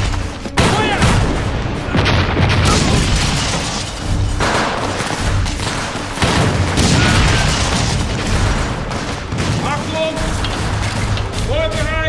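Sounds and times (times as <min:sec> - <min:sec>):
rifle and automatic gunfire: 0:04.4 - 0:11.3.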